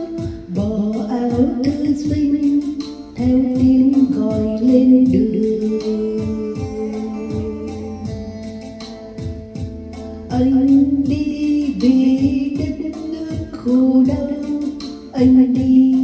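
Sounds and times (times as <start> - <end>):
hi-hat ticks: 0.0 - 16.0
steady drum beat: 0.0 - 16.0
person singing long notes: 3.2 - 9.5.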